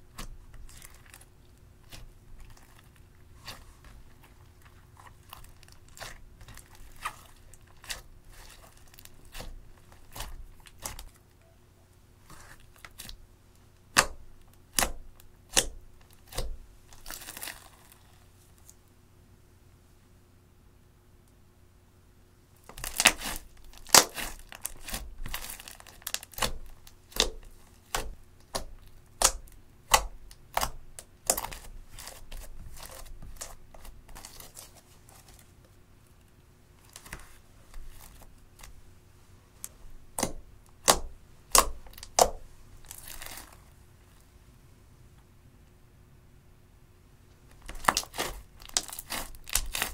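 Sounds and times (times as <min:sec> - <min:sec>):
slime popping and crackling: 0:00.1 - 0:11.2, 0:22.6 - 0:34.7, 0:40.2 - 0:43.6, 0:47.6 - 0:49.9.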